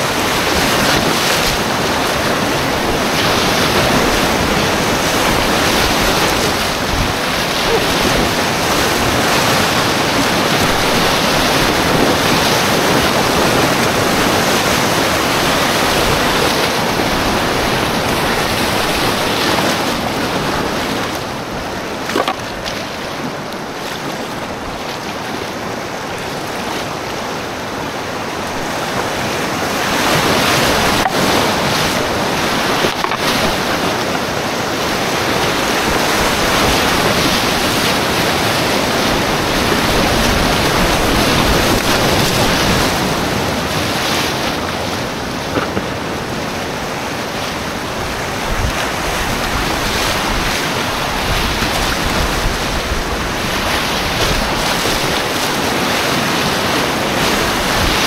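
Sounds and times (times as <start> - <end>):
water splashing against boat: 0.0 - 58.0
whitewater rapids rushing: 0.0 - 58.0.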